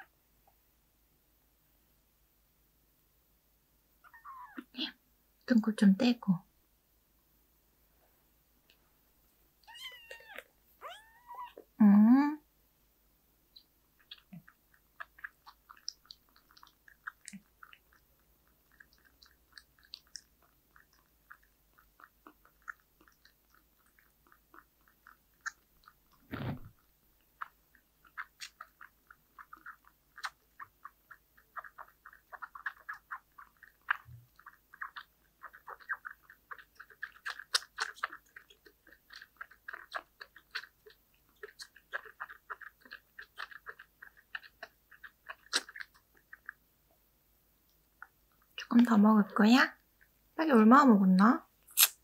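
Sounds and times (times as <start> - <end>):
kitten suckling bottle: 13.5 - 46.6, 51.7 - 52.0.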